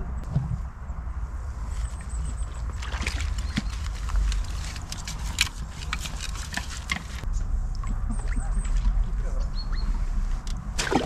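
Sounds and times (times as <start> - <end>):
fish handling clicks and splashes: 2.6 - 7.2.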